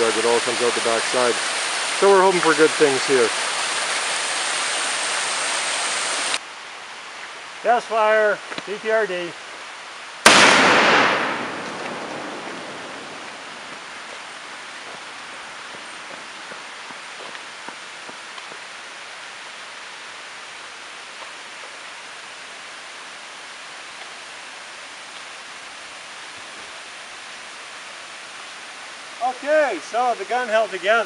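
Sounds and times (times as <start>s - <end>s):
stream water rushing: 0.0s - 31.0s
faint footsteps on gravel: 11.5s - 18.7s.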